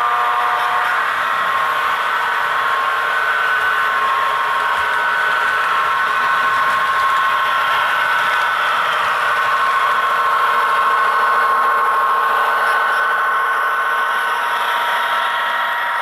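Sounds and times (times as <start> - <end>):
model locomotive whirring: 0.0 - 16.0.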